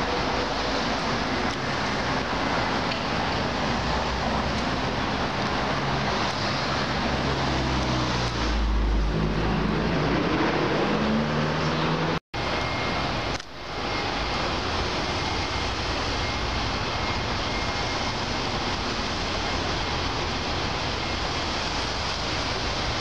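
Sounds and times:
passing vehicles rushing: 0.0s - 12.8s
car engine: 0.0s - 17.2s.

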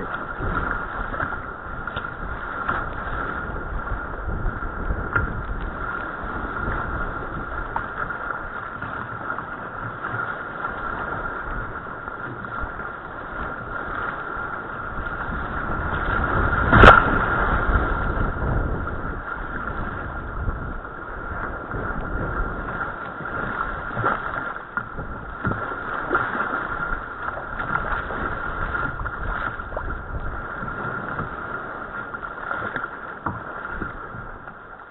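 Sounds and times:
wind buffeting microphone: 0.0s - 34.8s
water splashing against kayak hull: 0.0s - 34.9s
loud water slap against bow: 16.6s - 17.4s.

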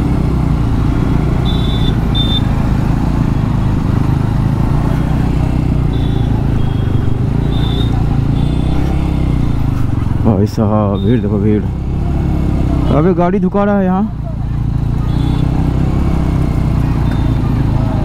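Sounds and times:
motorcycle engine running: 0.0s - 18.0s
high-pitched beeps: 1.5s - 2.5s, 5.9s - 9.6s.

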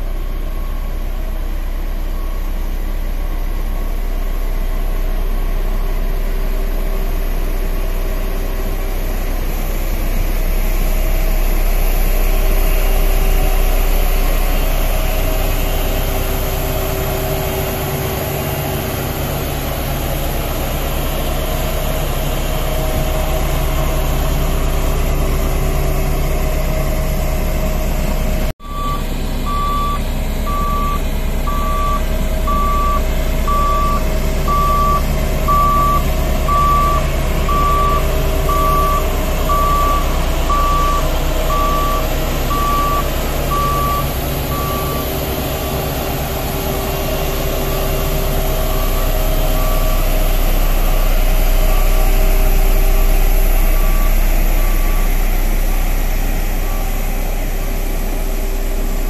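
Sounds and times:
diesel engine running: 0.0s - 59.0s
reversing alarm beeps: 2.1s - 2.6s, 28.6s - 57.4s.

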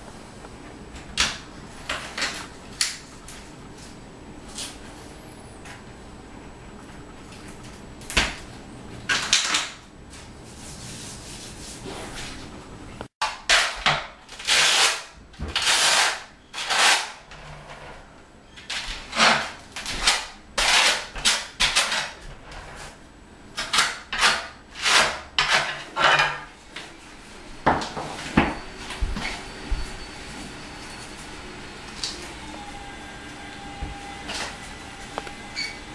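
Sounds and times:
trowel scraping mortar on tile: 15.6s - 17.2s, 20.6s - 22.0s.

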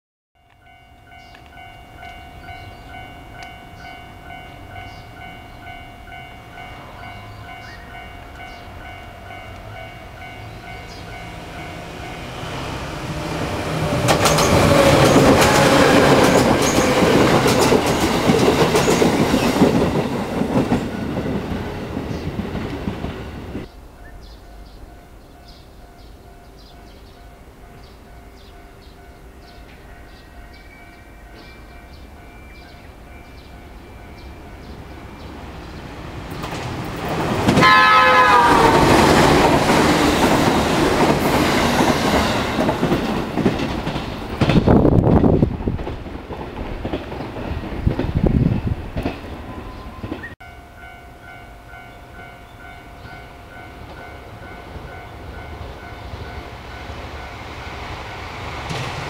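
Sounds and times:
electric train passing: 0.5s - 59.0s
train wheels clattering: 12.2s - 23.7s, 35.7s - 50.4s.

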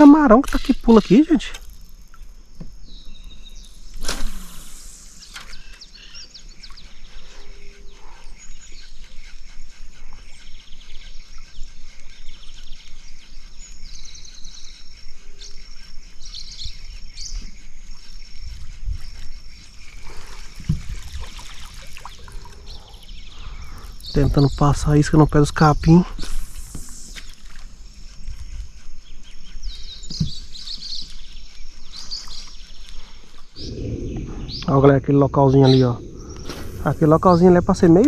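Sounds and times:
birds chirping: 0.0s - 38.0s
insects buzzing: 0.0s - 38.0s
dull low thump: 33.6s - 37.4s
sudden swish: 33.6s - 37.7s.

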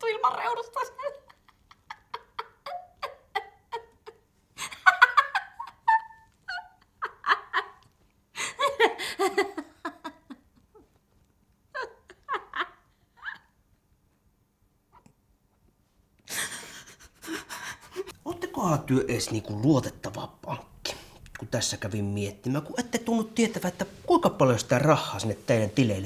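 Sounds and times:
woman laughing hysterically: 1.0s - 10.9s, 11.7s - 13.6s.

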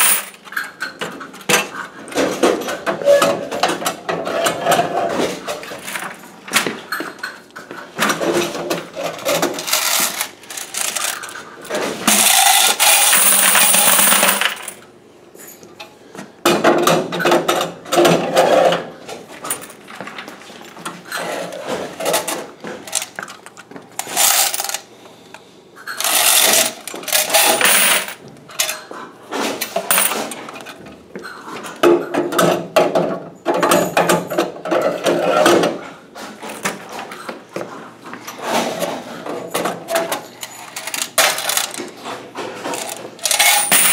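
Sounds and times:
coins pouring into plastic bucket: 0.0s - 0.4s, 9.6s - 14.8s, 24.0s - 24.8s, 26.0s - 28.2s, 29.8s - 30.3s, 42.7s - 43.9s.

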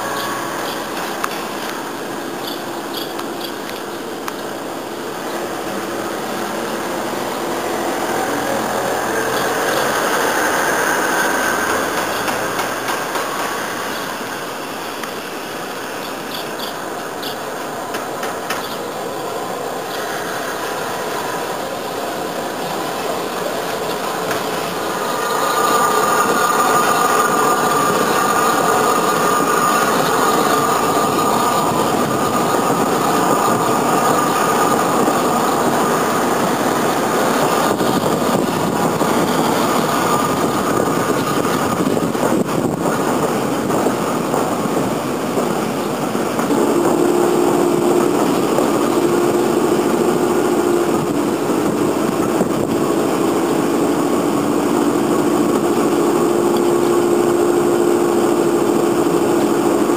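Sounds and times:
train wheels squealing: 0.0s - 1.7s, 2.3s - 4.2s, 7.4s - 14.9s, 15.9s - 17.5s
train running slowly: 0.0s - 59.9s
clicks over rail joints: 11.2s - 14.2s, 15.0s - 18.9s.

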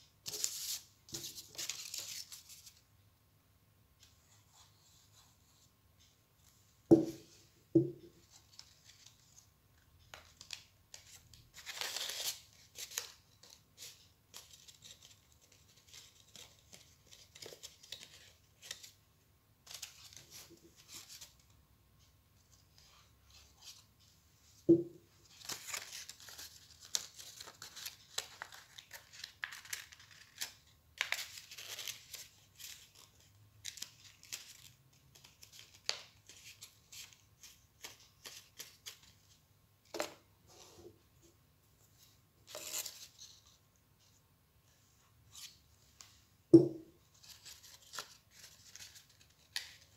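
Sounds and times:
paper rustling and crinkling: 0.2s - 2.8s, 10.1s - 19.0s, 25.2s - 39.3s, 47.0s - 49.9s.

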